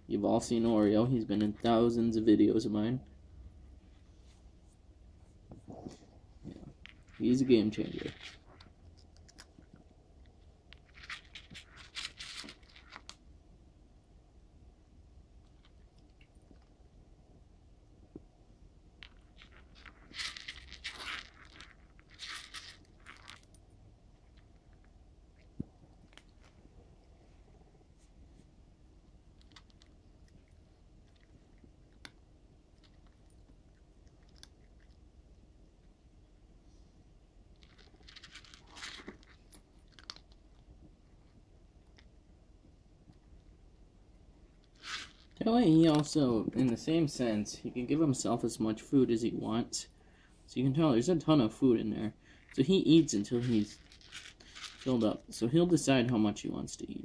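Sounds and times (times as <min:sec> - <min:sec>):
cat crunching dry kibble: 0:06.6 - 0:13.2, 0:19.0 - 0:27.1, 0:29.3 - 0:36.0, 0:37.5 - 0:42.2, 0:52.4 - 0:55.0.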